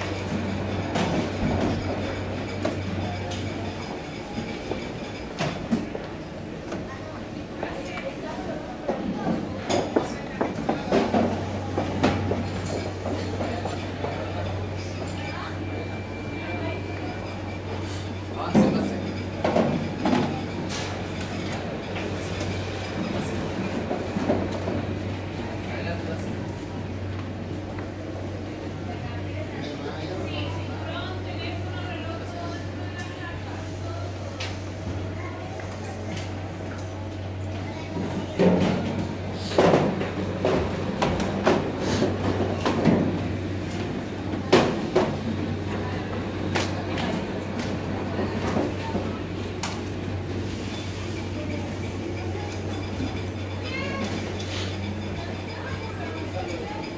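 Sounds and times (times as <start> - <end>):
baggage conveyor humming: 0.0 - 56.9
trays clattering on conveyor: 18.4 - 25.0, 37.8 - 49.9.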